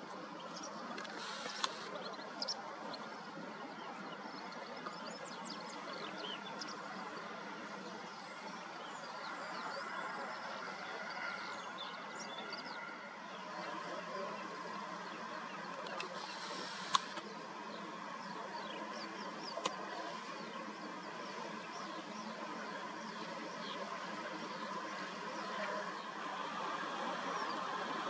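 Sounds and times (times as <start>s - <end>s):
outdoor background hiss: 0.2s - 2.7s, 14.9s - 28.0s
small birds chirping: 0.4s - 13.0s, 15.0s - 25.6s.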